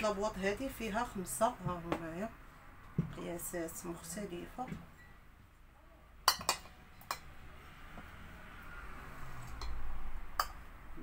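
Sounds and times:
glass jars clinking on a table: 6.3s - 7.3s.

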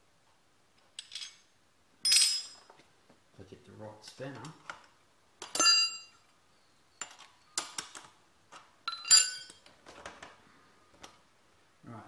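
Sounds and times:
spanners clinking and rattling: 5.4s - 6.2s, 8.9s - 10.3s
loud ringing metal clang: 5.6s - 6.2s.

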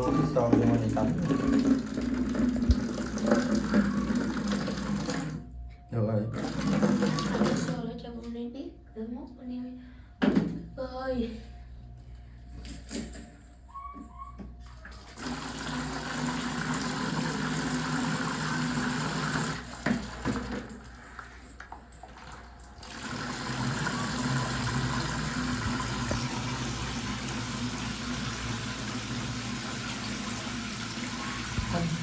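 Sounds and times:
shower spraying into plastic bucket: 0.0s - 5.4s, 6.4s - 7.8s, 15.1s - 32.0s.

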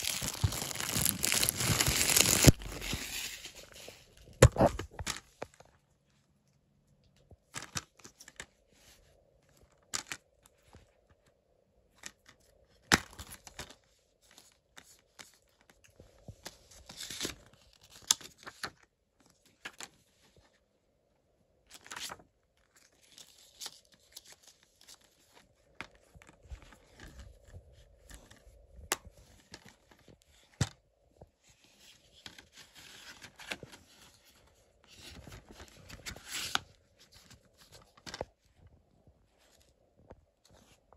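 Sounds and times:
paper insert rustling: 0.0s - 5.3s, 32.0s - 38.3s.

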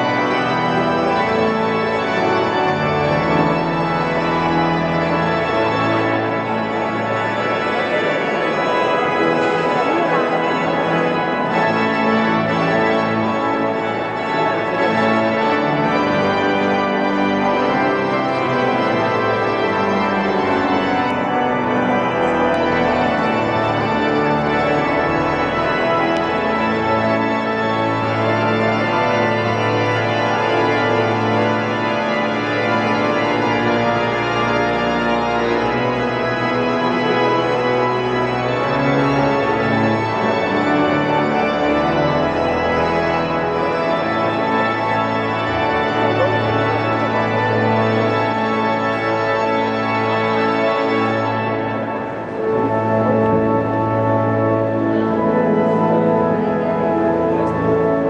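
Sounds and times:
pipe organ chords: 0.0s - 58.0s.

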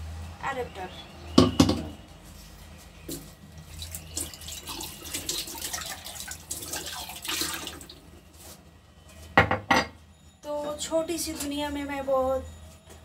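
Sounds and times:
water running from a tap: 3.7s - 8.0s.

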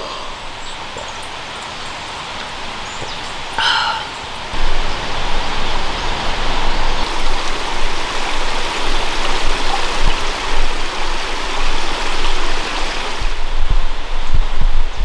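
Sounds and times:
stream running over rocks: 0.0s - 13.7s.

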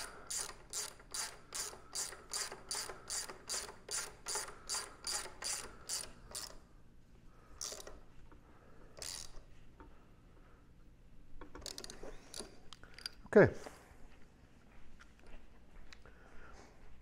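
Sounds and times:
socket ratchet clicking: 0.0s - 6.6s, 7.6s - 8.0s, 9.0s - 9.4s, 11.4s - 13.2s.

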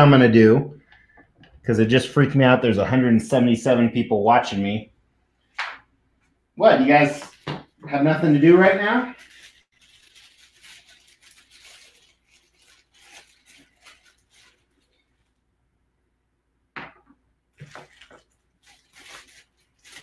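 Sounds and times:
plastic bags crinkling: 9.1s - 15.3s, 17.6s - 20.0s.

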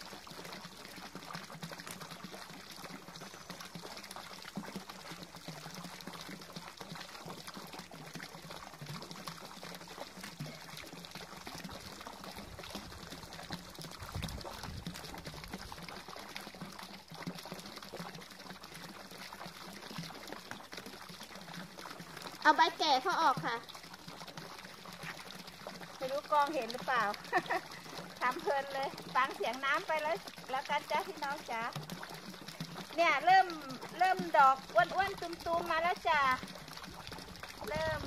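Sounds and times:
water pouring into pond: 0.0s - 38.0s.

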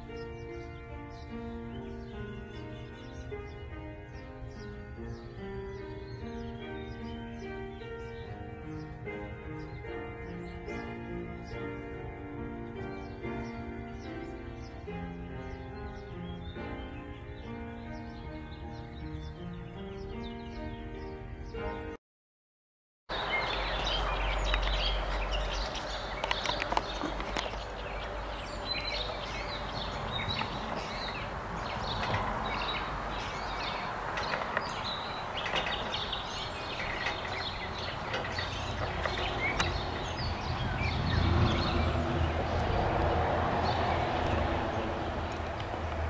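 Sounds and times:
birds chirping and singing: 0.0s - 22.0s, 23.1s - 46.0s.

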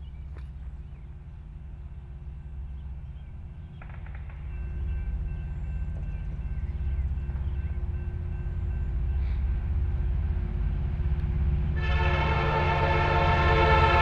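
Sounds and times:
diesel locomotive engine rumble: 0.0s - 14.0s
locomotive horn: 11.6s - 14.0s.

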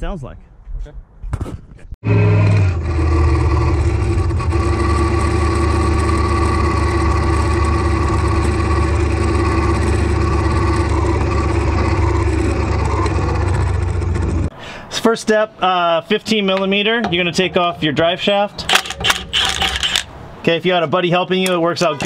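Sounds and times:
differential droning: 2.0s - 14.5s, 16.5s - 20.2s.

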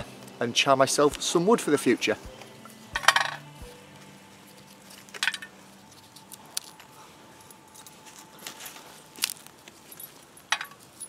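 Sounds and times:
metallic clinks in a tin: 5.1s - 6.8s, 9.8s - 11.0s.

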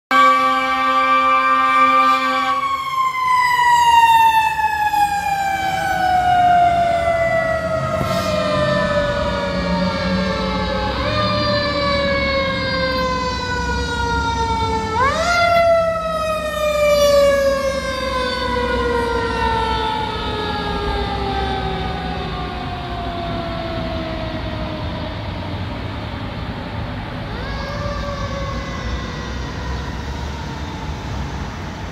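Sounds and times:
rumble of engines and traffic: 0.1s - 31.9s
mechanical siren winding down: 2.6s - 25.2s.

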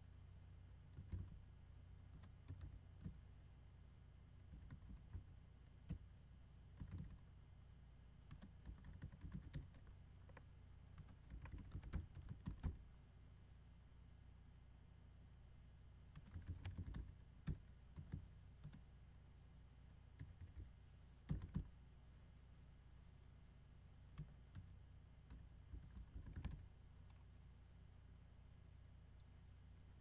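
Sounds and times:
typing on computer keyboard: 1.0s - 1.4s, 2.1s - 3.2s, 4.5s - 5.2s, 6.8s - 7.2s, 8.3s - 10.4s, 11.0s - 12.8s, 16.1s - 18.8s, 20.2s - 20.7s, 21.3s - 21.7s, 25.3s - 26.6s.

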